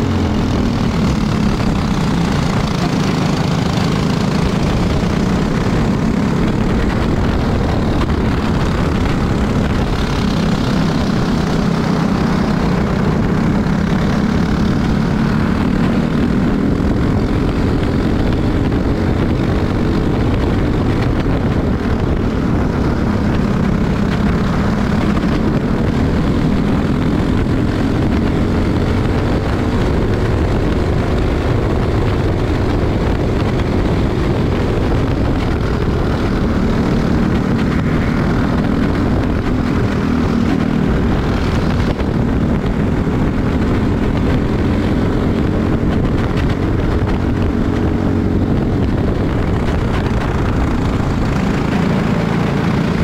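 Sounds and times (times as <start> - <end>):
kart engine running hard: 0.0 - 53.0
wind rush: 0.0 - 53.0.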